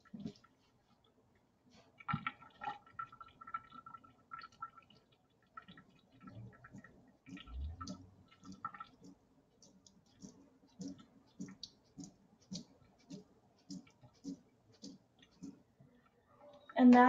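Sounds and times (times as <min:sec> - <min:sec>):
faint water patter: 0:00.0 - 0:17.0.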